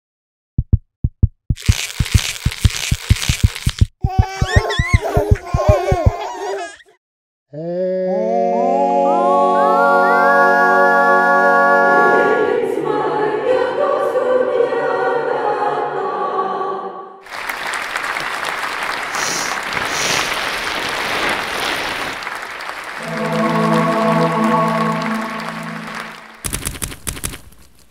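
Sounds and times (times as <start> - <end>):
voices singing in harmony: 7.8 - 17.2, 23.0 - 26.3
audience applause: 17.2 - 26.8.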